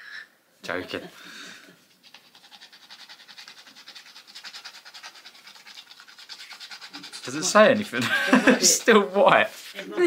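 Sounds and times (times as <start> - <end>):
coin scratching scratch card: 2.0 - 7.9.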